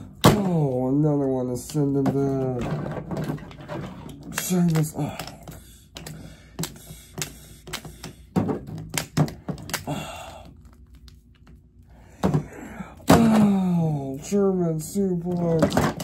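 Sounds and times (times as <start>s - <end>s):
plastic action figures clacking: 1.5s - 9.9s, 15.0s - 16.0s.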